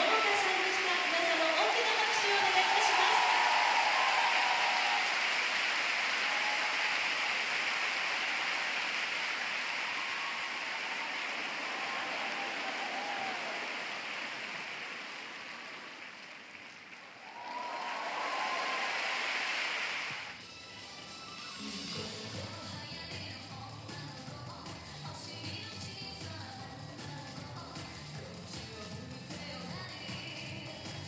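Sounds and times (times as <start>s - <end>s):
arena crowd applauding: 0.0s - 20.4s.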